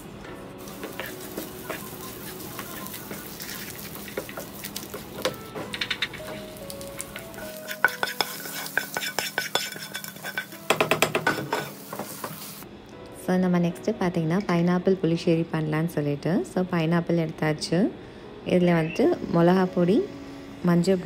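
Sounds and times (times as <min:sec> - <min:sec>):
soft background music: 0:00.0 - 0:21.0
food sizzling in hot oil: 0:00.6 - 0:12.7
spatula scraping and clicking pan: 0:02.6 - 0:06.4, 0:07.2 - 0:12.4.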